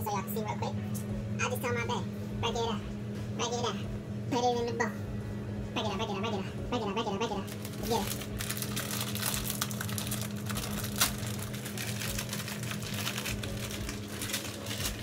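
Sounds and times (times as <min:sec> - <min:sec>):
plastic packet crinkling: 0:07.5 - 0:15.0.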